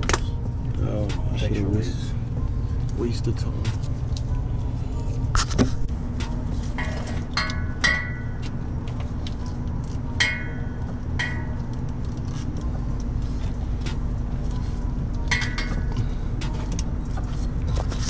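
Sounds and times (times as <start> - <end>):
low rumble: 0.0 - 18.0.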